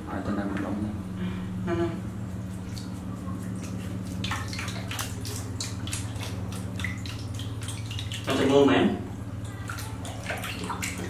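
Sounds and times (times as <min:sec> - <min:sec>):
steady low hum: 0:00.0 - 0:11.0
water splashing in plastic basin: 0:03.5 - 0:08.7, 0:09.4 - 0:11.0.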